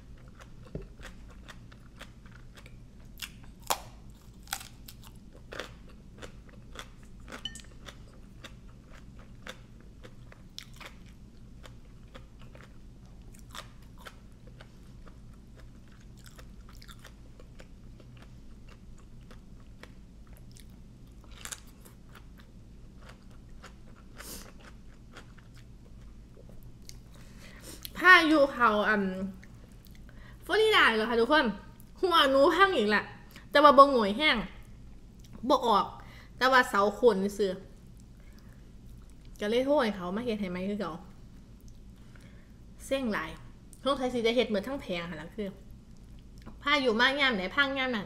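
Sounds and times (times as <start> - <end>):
crunchy chewing: 0.0 - 28.0.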